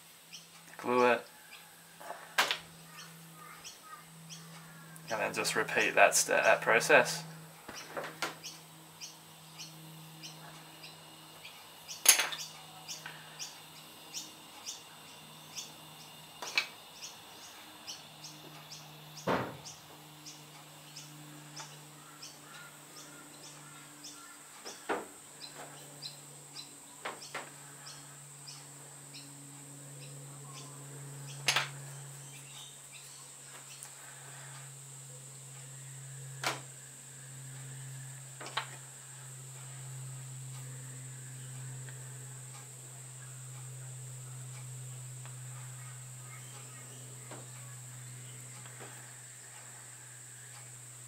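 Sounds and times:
steady low hum: 0.0 - 51.0
faint high chirping: 0.3 - 5.7, 43.2 - 50.8.

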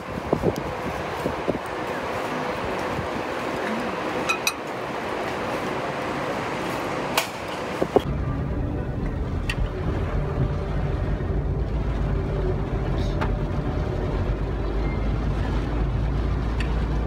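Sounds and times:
low vehicle rumble: 0.0 - 17.0.

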